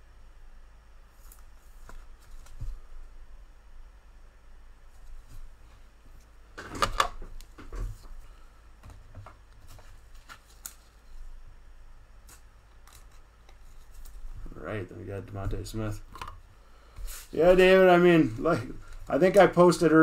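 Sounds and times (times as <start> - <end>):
trading cards rustling: 9.6 - 11.2.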